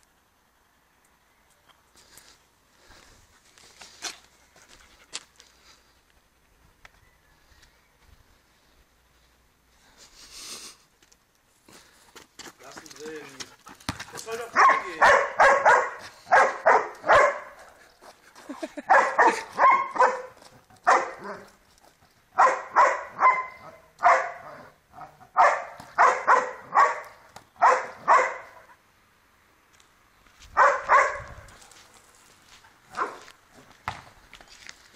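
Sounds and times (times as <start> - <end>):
dog barking: 14.5 - 17.7, 18.9 - 21.5, 22.4 - 28.7, 30.6 - 31.4, 32.9 - 33.3.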